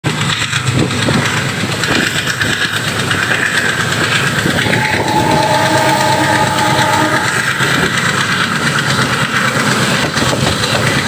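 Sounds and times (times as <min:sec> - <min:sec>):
train wheels clattering on rails: 0:00.1 - 0:11.0
train horn: 0:04.5 - 0:08.5.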